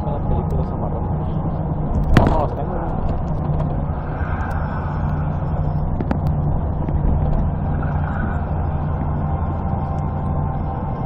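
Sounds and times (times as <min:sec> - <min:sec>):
vehicle engine and road noise: 0:00.0 - 0:11.0.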